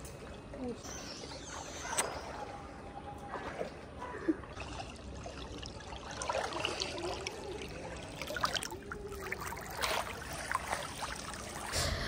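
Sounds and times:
pool water lapping and trickling: 0:00.0 - 0:12.0
small splashes: 0:01.5 - 0:11.8.

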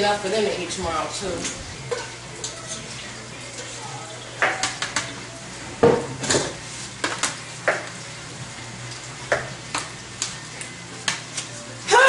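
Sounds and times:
utensil clinking against pot: 0:01.9 - 0:02.9.

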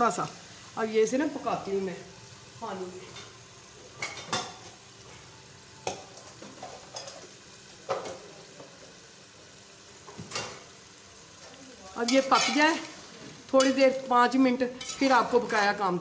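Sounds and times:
faint sizzle: 0:00.0 - 0:16.0
metal spatula scraping a pot: 0:14.7 - 0:15.7.

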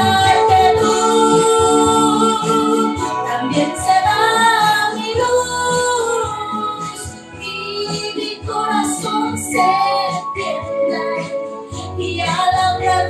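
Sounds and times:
woman singing into microphone: 0:00.0 - 0:13.0.

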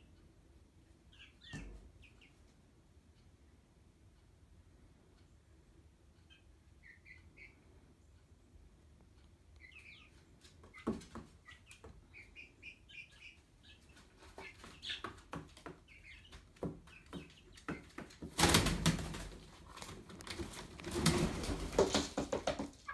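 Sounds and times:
chicken chirping softly: 0:00.0 - 0:18.2
wing flapping: 0:18.3 - 0:22.7.

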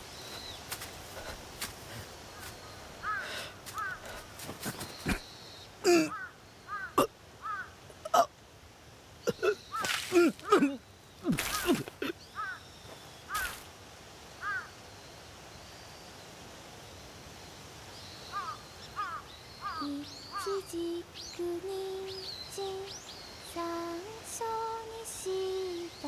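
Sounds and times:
crows cawing: 0:03.0 - 0:04.3, 0:05.9 - 0:07.8, 0:11.3 - 0:12.6, 0:13.3 - 0:13.6, 0:14.4 - 0:14.7, 0:18.3 - 0:19.8
person singing slow tune: 0:19.8 - 0:26.0.

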